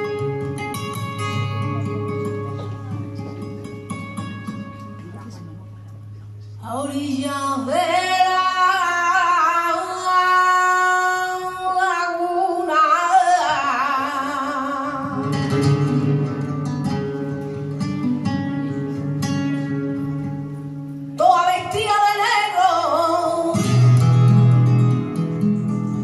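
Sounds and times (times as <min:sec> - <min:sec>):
strummed guitar chords: 0:00.0 - 0:06.4, 0:14.5 - 0:21.6, 0:23.4 - 0:26.0
woman singing: 0:06.6 - 0:15.8, 0:21.2 - 0:24.0.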